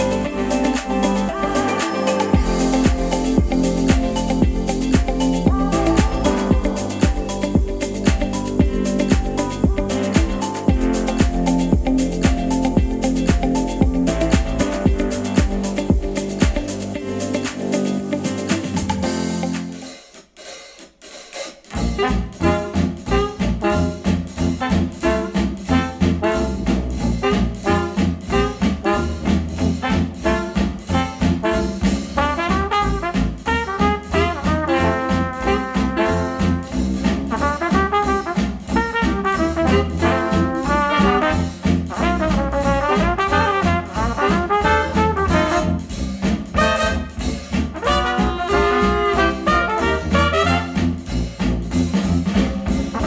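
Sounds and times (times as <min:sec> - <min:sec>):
previous song: 0:00.0 - 0:20.0
jazz with brass and drums: 0:00.0 - 0:53.0.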